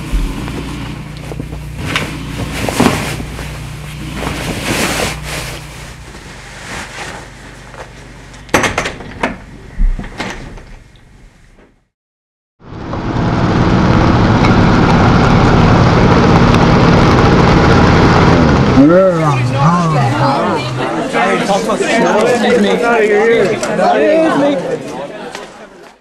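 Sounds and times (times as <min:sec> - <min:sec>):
low steady hum: 0:00.0 - 0:11.4
clothes rustling: 0:00.1 - 0:08.1
door opening clicks and knocks: 0:08.5 - 0:10.8.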